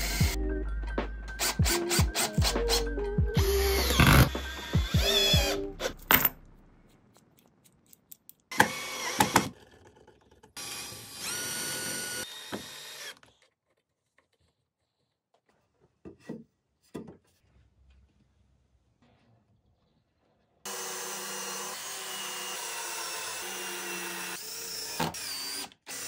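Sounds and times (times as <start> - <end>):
cordless drill boring into wood: 3.4 - 5.6, 8.5 - 9.6, 10.6 - 13.3, 20.7 - 26.0.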